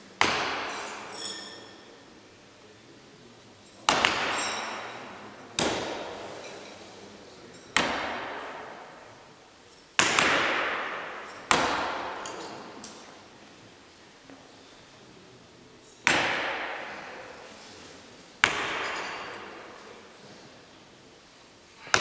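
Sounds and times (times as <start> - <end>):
knives striking wooden boards: 0.2 - 1.2, 3.9 - 5.0, 5.6 - 6.2, 7.8 - 8.8, 10.0 - 12.9, 16.0 - 17.2, 18.4 - 19.5.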